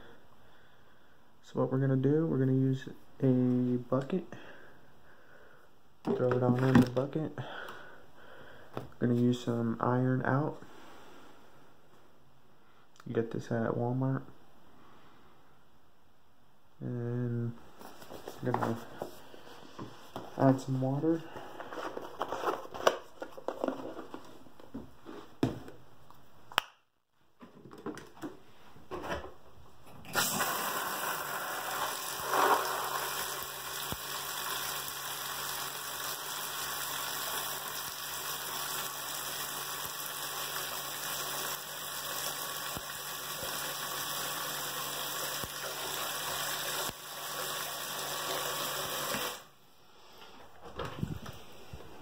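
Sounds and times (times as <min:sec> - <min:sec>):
tap water running into bucket: 0:30.2 - 0:49.5.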